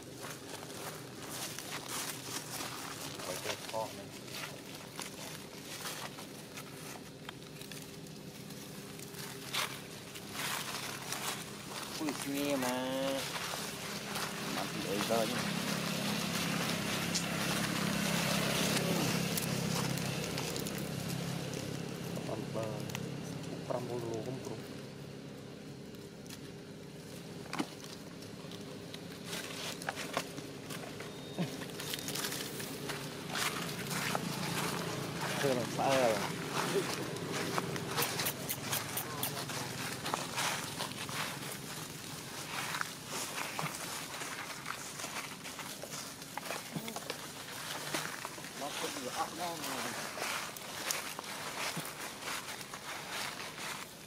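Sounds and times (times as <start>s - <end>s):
footsteps in dry leaves: 0.0s - 54.0s
steady low hum: 0.0s - 54.0s.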